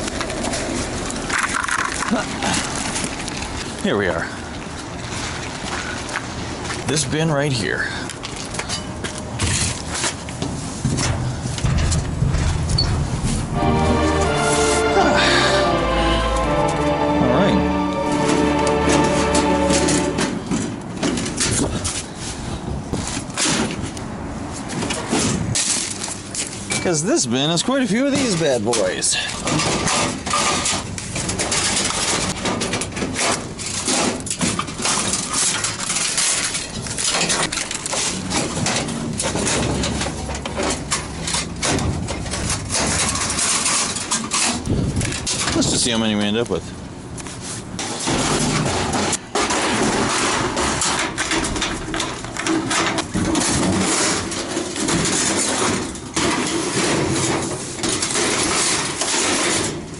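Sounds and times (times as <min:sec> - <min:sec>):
metal knocks and bangs: 0:08.8 - 0:13.6, 0:29.4 - 0:45.7, 0:47.8 - 0:59.9
sheet metal fixtures scraping: 0:28.1 - 0:45.7.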